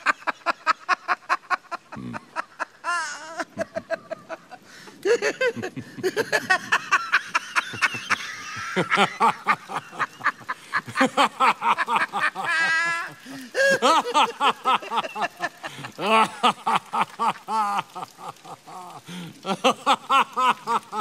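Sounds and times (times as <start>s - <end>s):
men laughing hard: 0.0s - 21.0s.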